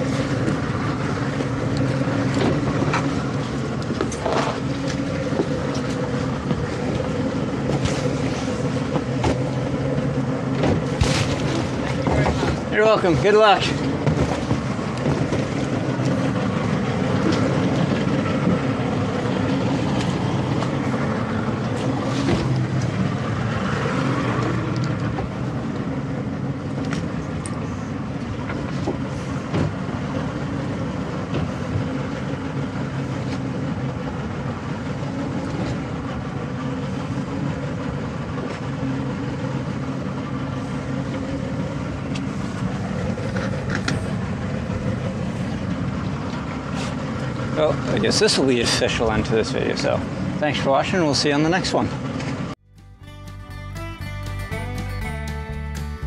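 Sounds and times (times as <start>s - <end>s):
rush of wind and water: 0.0s - 52.6s
motorboat engine running: 0.0s - 56.0s.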